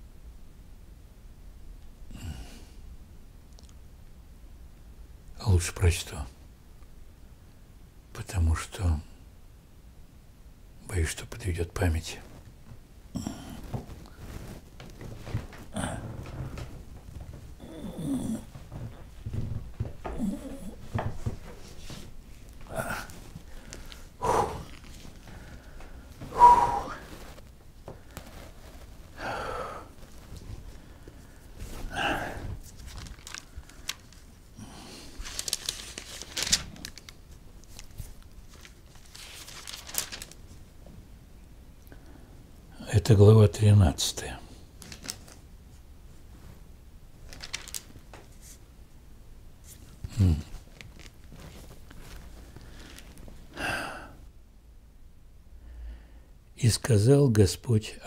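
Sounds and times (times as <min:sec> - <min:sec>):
rustling movement: 0:12.1 - 0:41.1, 0:44.7 - 0:48.8, 0:49.4 - 0:53.6
man breathing effortfully: 0:15.2 - 0:22.0, 0:22.6 - 0:32.7, 0:52.4 - 0:54.3
man grunting: 0:15.7 - 0:16.2, 0:17.6 - 0:18.5, 0:20.0 - 0:20.8, 0:22.7 - 0:23.2, 0:24.2 - 0:24.7, 0:26.3 - 0:27.0, 0:31.9 - 0:32.5, 0:50.1 - 0:50.6
short breath: 0:22.7 - 0:24.7, 0:25.3 - 0:27.3.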